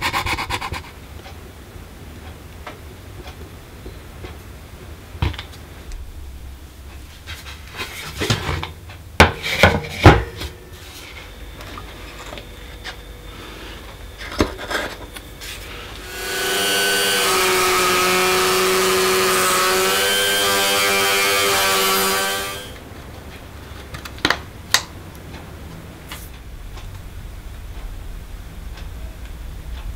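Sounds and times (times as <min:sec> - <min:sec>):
rotary tool whining: 0:13.5 - 0:22.8.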